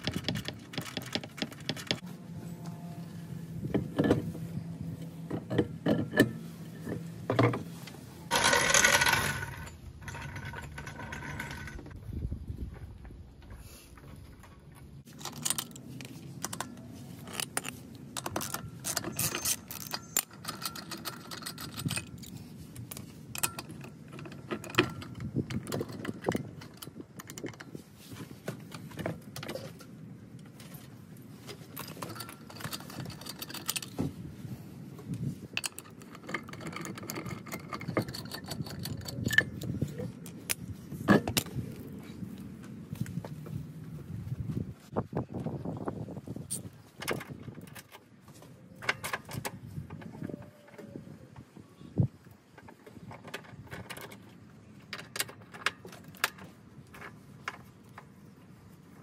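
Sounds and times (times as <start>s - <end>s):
metal lug nuts clinking: 5.3s - 7.6s, 8.3s - 12.0s, 15.0s - 27.8s, 31.6s - 34.1s.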